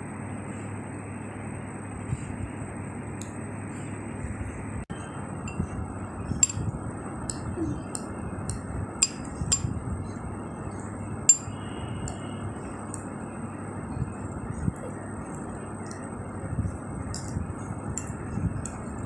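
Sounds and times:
steady background noise: 0.0s - 19.0s
fork clinking against a bowl: 6.4s - 6.7s, 9.0s - 9.7s, 11.3s - 11.6s.

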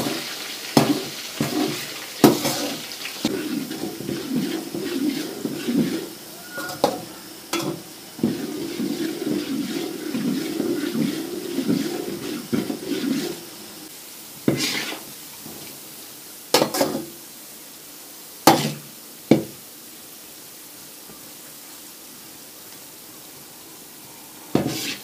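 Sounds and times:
frying sizzle: 0.0s - 25.0s
metal spoon scraping pan: 0.8s - 13.6s, 14.5s - 15.0s, 24.6s - 25.0s.

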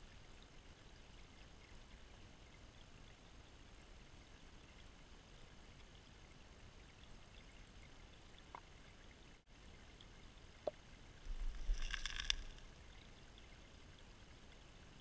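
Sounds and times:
gravel scraping underwater: 11.2s - 12.7s.

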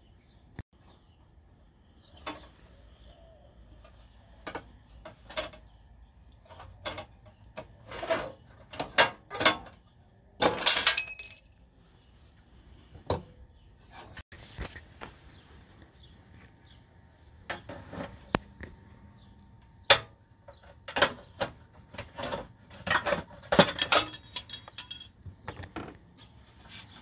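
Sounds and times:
metal tools clinking: 10.4s - 11.6s, 22.8s - 25.2s
ringing metallic rattle: 23.6s - 25.2s.

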